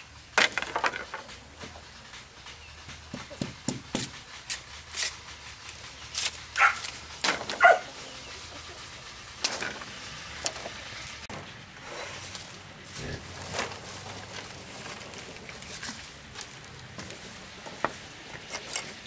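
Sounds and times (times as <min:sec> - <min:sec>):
dog barking: 0:06.6 - 0:06.9, 0:07.6 - 0:07.9.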